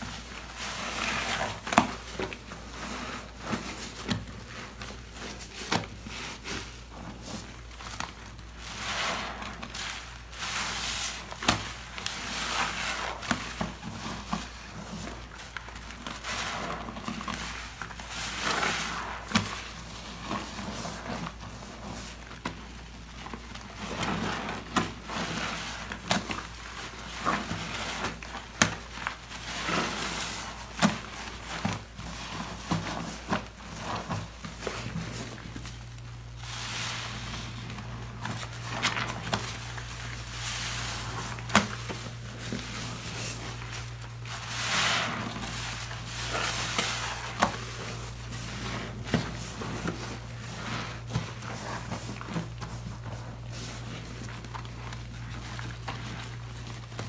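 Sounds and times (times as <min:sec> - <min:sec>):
sponges squelching in lather: 0:00.0 - 0:57.0.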